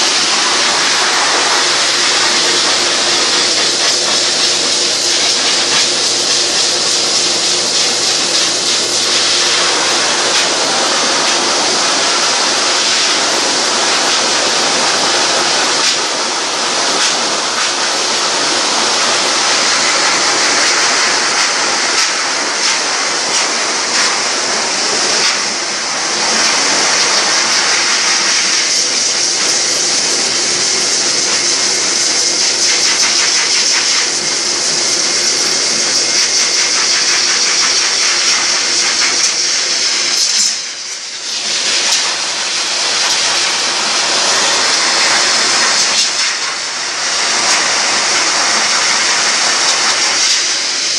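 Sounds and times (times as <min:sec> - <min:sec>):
dryer motor hum: 0:00.0 - 0:50.9
pet dryer blowing air: 0:00.0 - 0:50.9.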